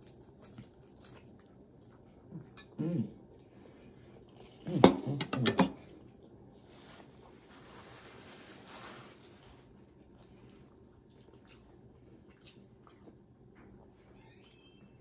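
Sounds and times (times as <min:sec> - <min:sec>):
paper napkin rustling: 0:06.7 - 0:09.8.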